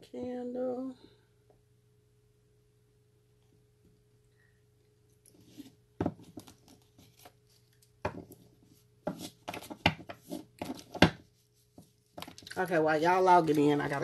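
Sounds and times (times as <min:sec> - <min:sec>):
rustling and crinkling: 0:05.2 - 0:14.0.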